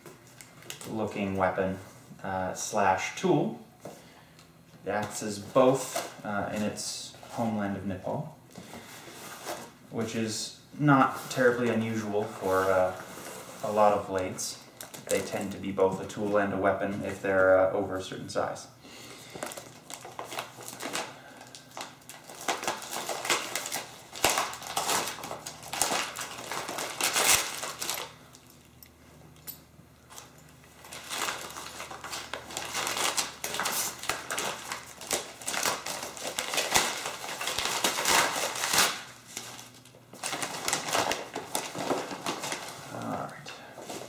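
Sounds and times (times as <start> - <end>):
newspaper crinkling and rustling: 19.3 - 28.4, 30.1 - 44.0.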